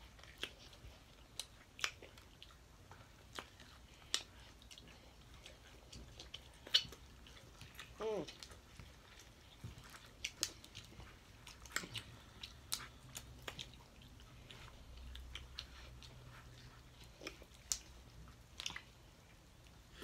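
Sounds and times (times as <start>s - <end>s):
chewing and biting: 0.0s - 20.0s
sharp clicks and smacks: 17.0s - 18.9s.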